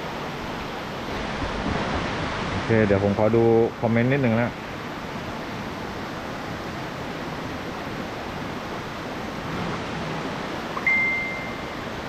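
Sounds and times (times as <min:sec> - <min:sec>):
waterfall rushing water: 0:00.0 - 0:12.0
high ding: 0:10.8 - 0:11.8.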